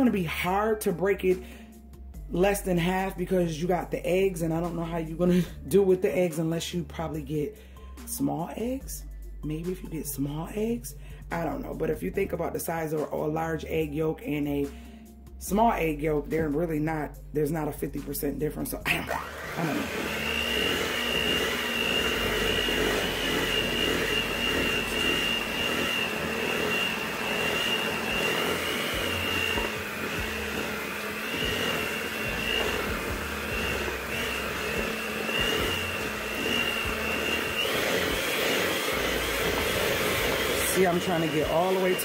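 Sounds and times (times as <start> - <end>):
electric hand mixer whining: 18.9 - 42.0.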